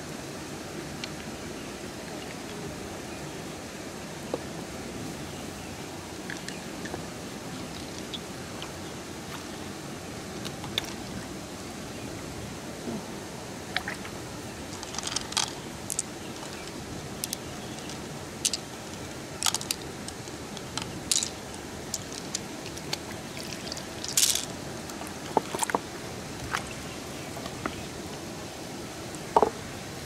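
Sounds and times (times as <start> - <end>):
running stream water: 0.0 - 30.0
pearls clicking together: 14.8 - 24.5.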